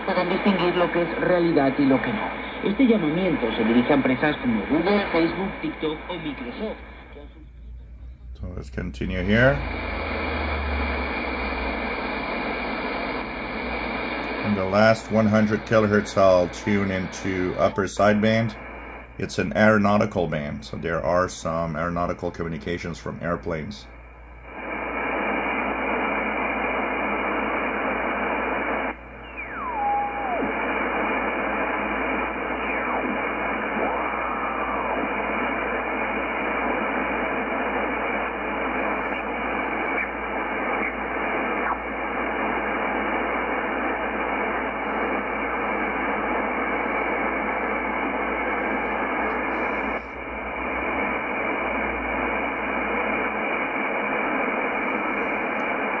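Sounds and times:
muffled radio static hiss: 0.0 - 56.0
whistling tone sliding down: 29.2 - 30.5.

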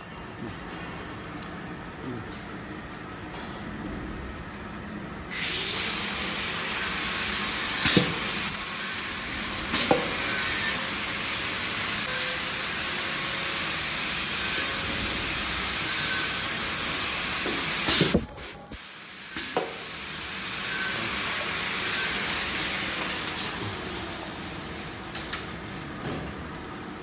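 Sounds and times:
pneumatic air hiss: 5.3 - 16.7, 17.3 - 22.9.

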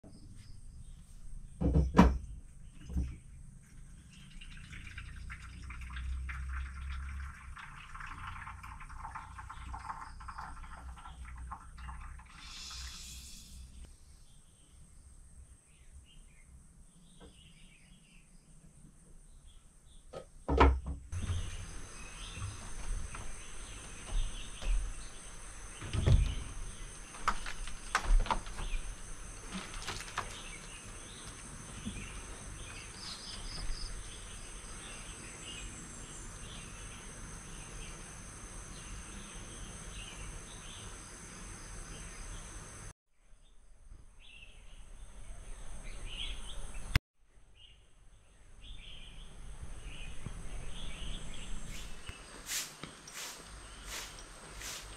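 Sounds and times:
insects trilling: 6.4 - 13.8, 21.2 - 42.9
short insect chirps: 12.3 - 13.8.

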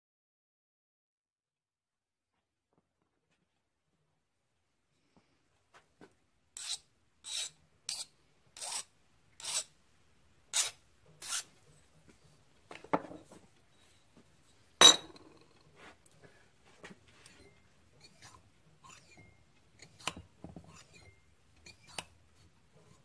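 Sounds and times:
file rasping on metal: 6.6 - 9.8, 10.5 - 11.5, 18.0 - 22.1
tools clanking on workbench: 14.8 - 15.6.

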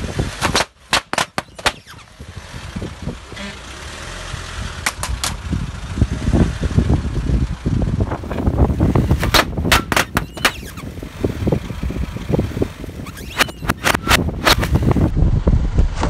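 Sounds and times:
car rumbling: 0.0 - 16.0
balloons popping: 0.4 - 2.0, 9.1 - 10.9, 13.0 - 14.9.

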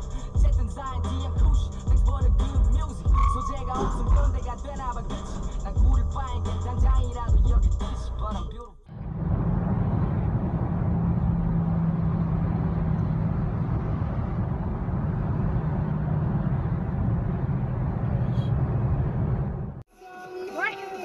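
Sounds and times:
car engine and road noise: 0.0 - 19.9
low hum: 8.9 - 19.8.

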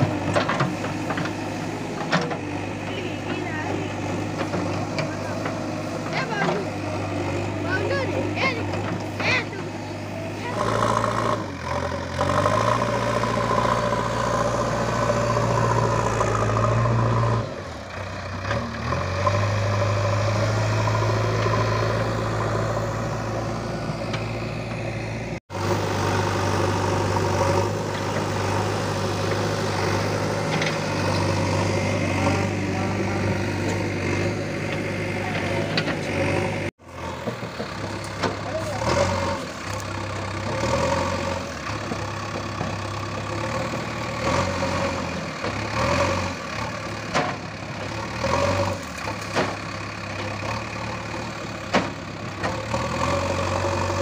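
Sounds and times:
diesel engine droning: 0.0 - 54.0.

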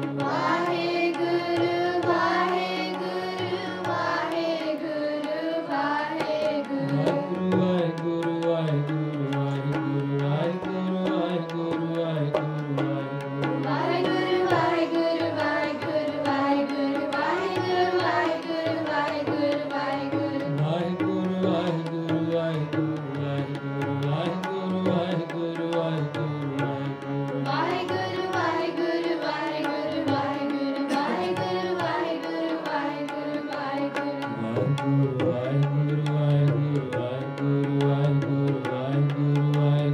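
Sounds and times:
harmonium sustained chords: 0.0 - 39.9
tabla drumming: 0.0 - 39.9
person singing hymn melody: 5.4 - 7.7, 27.5 - 33.0.

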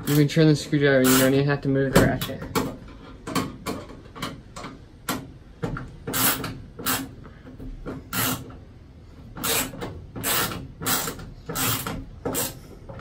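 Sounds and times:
screwdriver rasping scrape: 1.0 - 1.4, 6.1 - 7.1, 8.1 - 8.5, 9.4 - 12.7.

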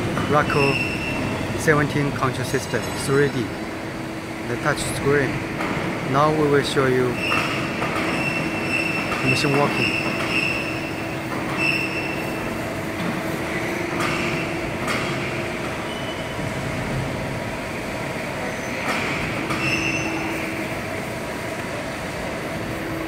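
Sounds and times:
press machine humming: 0.0 - 18.3.

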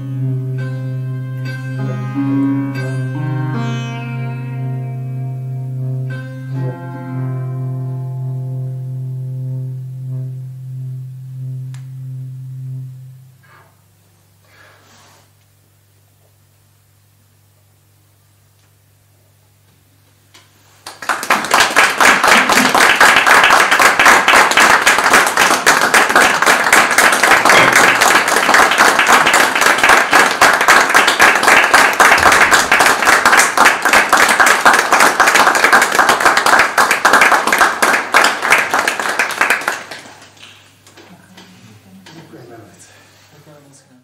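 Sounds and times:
audience applauding: 20.7 - 40.8.

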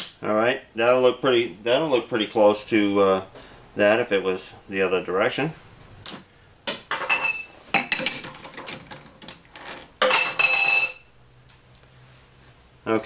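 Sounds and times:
metal parts clinking: 7.0 - 12.0.

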